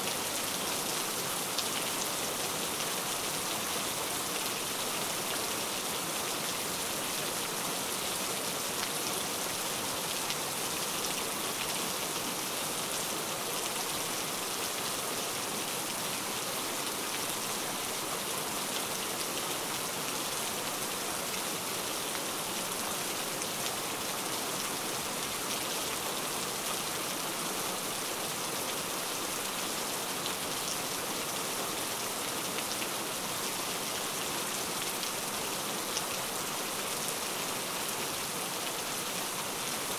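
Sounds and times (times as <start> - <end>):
steady rain: 0.0 - 39.9.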